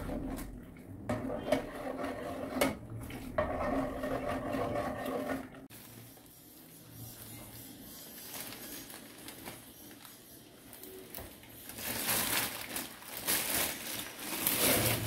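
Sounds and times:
plastic packet crinkling: 8.2s - 15.0s.

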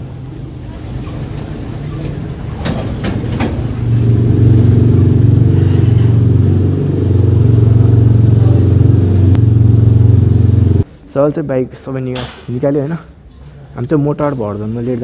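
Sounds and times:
motorcycle engine idling: 3.8s - 10.8s.

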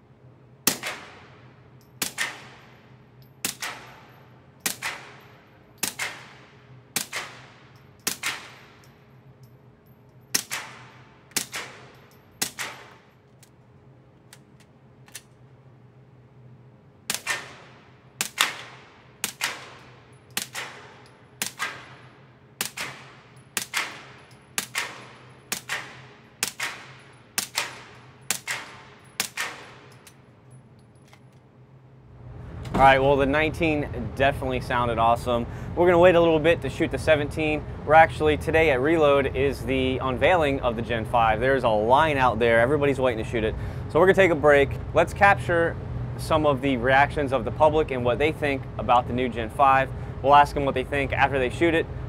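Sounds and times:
suppressed pistol shots: 0.6s - 1.4s, 2.0s - 2.7s, 3.4s - 4.0s, 4.6s - 8.8s, 10.3s - 13.1s, 17.1s - 30.0s.

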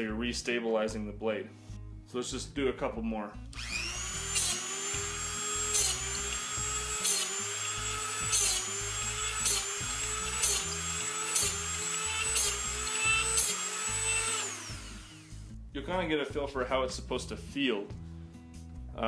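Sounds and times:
rotary tool whining: 3.6s - 15.3s.

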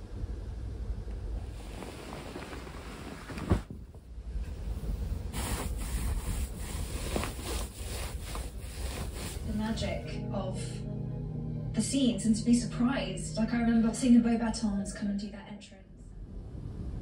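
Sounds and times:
low steady rumble: 0.0s - 17.0s
hands rustling fabric: 1.5s - 3.8s, 4.6s - 10.0s.

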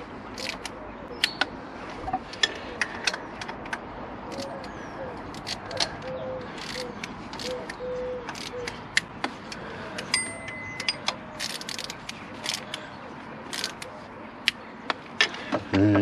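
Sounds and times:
ratchet wrench clicking: 6.6s - 9.1s, 10.0s - 12.7s.

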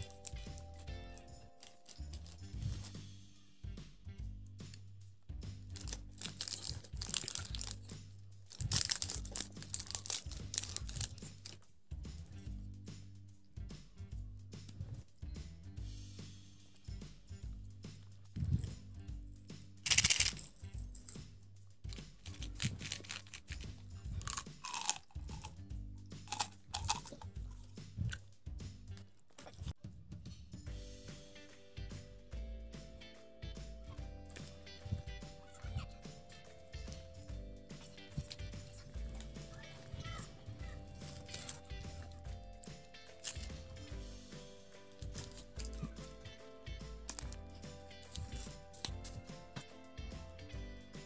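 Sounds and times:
candies rattling into palm: 0.0s - 3.0s, 5.7s - 7.9s, 8.5s - 11.6s, 19.8s - 21.2s, 21.8s - 25.5s, 26.3s - 27.3s, 37.8s - 42.3s, 47.0s - 49.2s
background music with bass: 0.0s - 51.0s
plastic wrapper crinkling and tearing: 1.5s - 3.0s, 5.7s - 7.9s, 8.5s - 11.6s, 22.2s - 24.9s.

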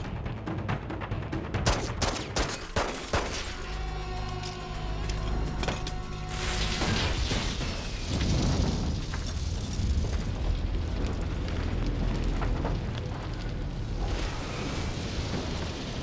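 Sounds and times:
debris crackling: 1.4s - 16.0s
deep rumble: 3.7s - 16.0s.

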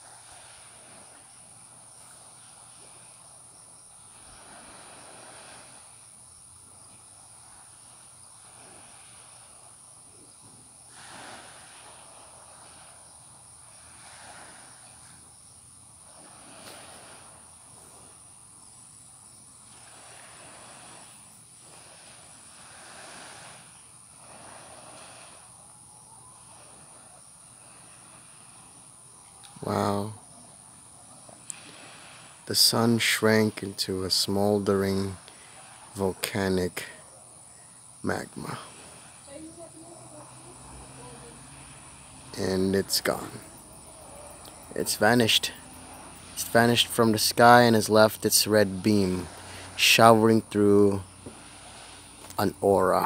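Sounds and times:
crickets chirring: 0.0s - 53.0s
soft rush: 15.9s - 53.0s.

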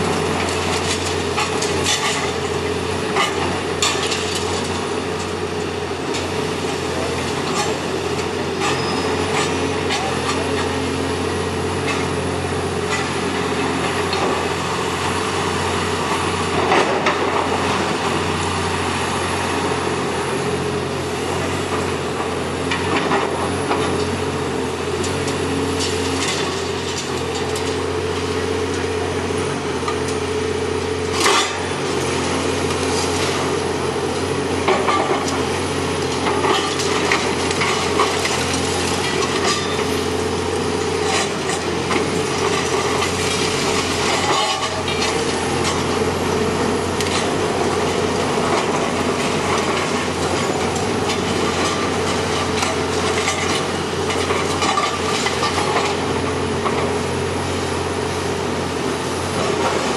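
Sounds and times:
excavator diesel engine running: 0.0s - 59.9s
breaking masonry and falling rubble: 34.6s - 56.9s.

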